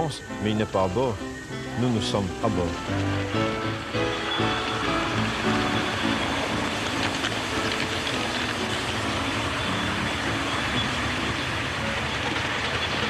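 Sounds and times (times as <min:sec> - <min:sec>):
miniature steam locomotive running: 0:00.0 - 0:13.0.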